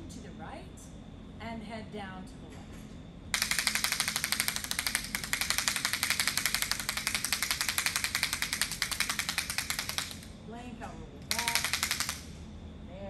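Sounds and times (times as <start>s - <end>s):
rapid clicking of handheld clicker: 3.4s - 10.3s, 11.3s - 12.3s.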